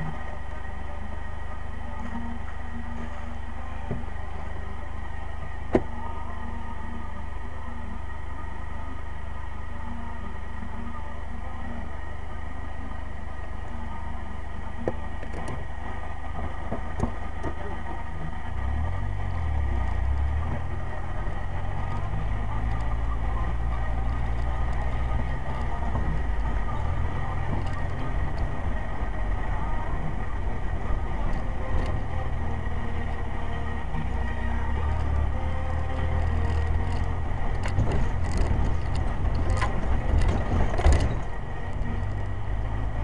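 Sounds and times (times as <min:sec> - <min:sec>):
engine and road rumble: 0:00.0 - 0:43.0
clicks and rattles: 0:36.1 - 0:42.2.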